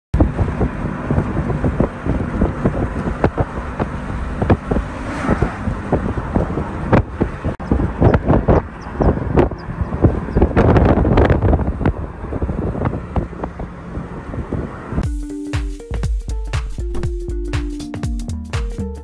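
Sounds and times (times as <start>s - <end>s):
vehicle rumbling on rough road: 0.2s - 15.0s
wind buffeting microphone: 0.2s - 15.0s.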